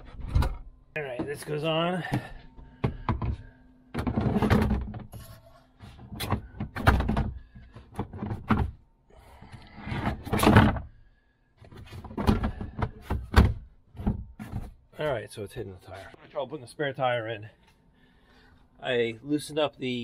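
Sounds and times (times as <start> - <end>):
plastic panels knocking and scraping: 0.0 - 8.8, 9.8 - 10.9, 11.6 - 14.9.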